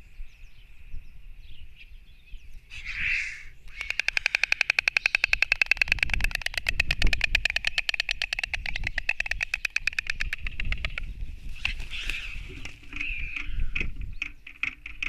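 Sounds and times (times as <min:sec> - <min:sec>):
storks clattering bills: 0:03.8 - 0:11.0.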